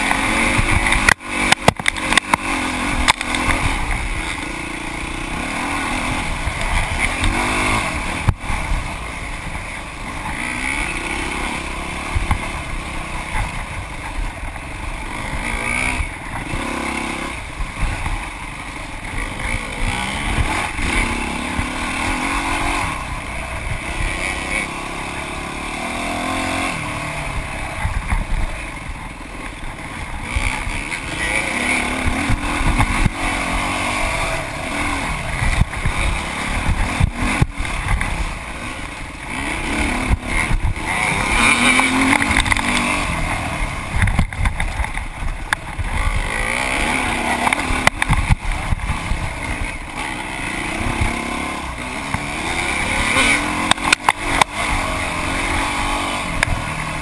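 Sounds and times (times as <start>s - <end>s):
dirt bike engine revving: 0.0s - 57.0s
wind noise on microphone: 11.1s - 25.0s, 26.5s - 31.3s, 31.9s - 57.0s.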